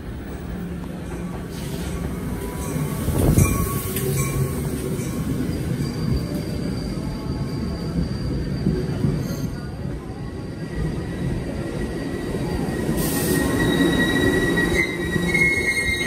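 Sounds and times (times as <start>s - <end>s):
train wheels rumbling on rail: 0.0s - 16.0s
high-pitched wheel squeal: 5.5s - 9.6s, 11.8s - 16.0s.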